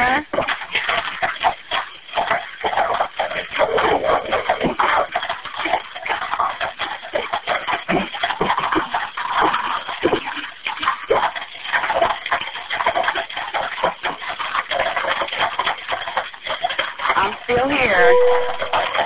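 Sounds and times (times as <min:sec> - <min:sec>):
fire crackling and popping: 0:00.0 - 0:19.0.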